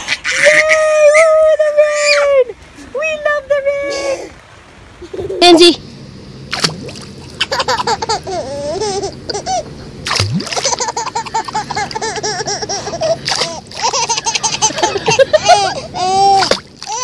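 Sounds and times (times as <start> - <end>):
baby giggling: 5.0 - 5.6, 7.4 - 9.7, 10.6 - 17.0
pool water splashing: 6.5 - 8.1, 10.0 - 17.0.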